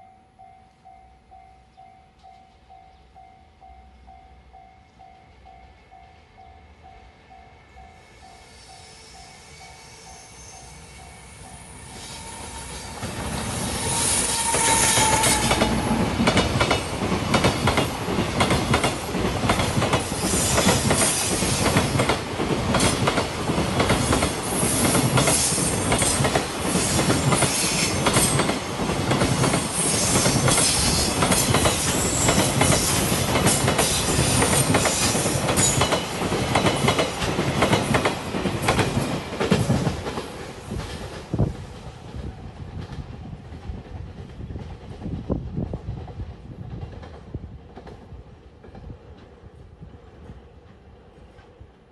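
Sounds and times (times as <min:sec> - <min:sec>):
freight train rumbling past: 0:01.0 - 0:51.9
wagon wheels clacking on rails: 0:14.5 - 0:41.3.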